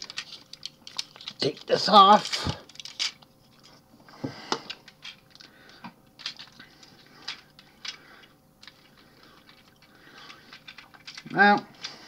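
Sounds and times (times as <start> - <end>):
plastic toy parts clicking: 10.5 - 11.4.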